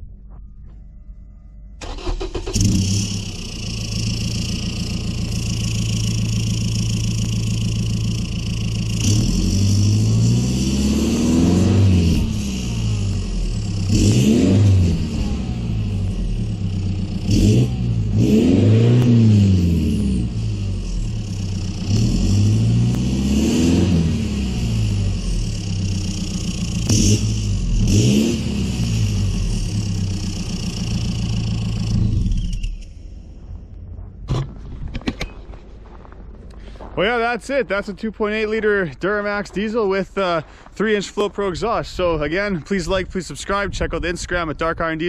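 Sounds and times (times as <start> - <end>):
diesel engine idling and revving: 0.0 - 45.0.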